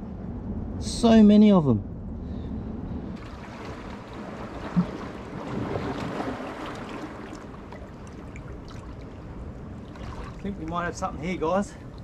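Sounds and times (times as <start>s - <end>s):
water sloshing and lapping: 3.2s - 12.0s.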